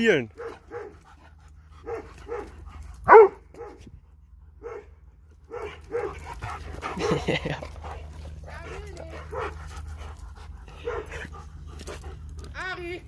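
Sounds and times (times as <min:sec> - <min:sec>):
dog barking: 0:00.4 - 0:01.0, 0:01.8 - 0:03.8, 0:04.6 - 0:04.9, 0:05.5 - 0:06.2, 0:10.8 - 0:11.2.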